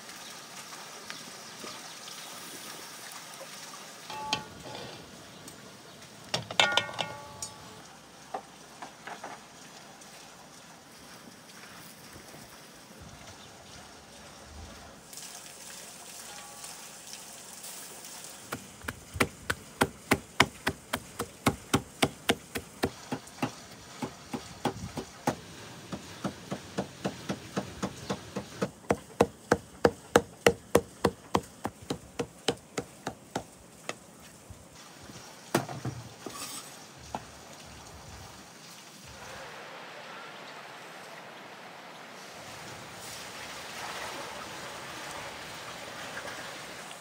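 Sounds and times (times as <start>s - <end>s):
cleaver chopping on wooden block: 18.5s - 34.0s.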